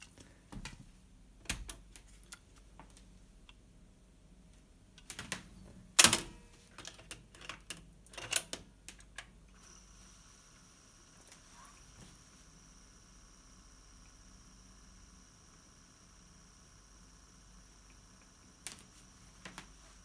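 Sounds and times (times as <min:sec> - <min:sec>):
faint high whine with hiss: 0:09.4 - 0:20.0.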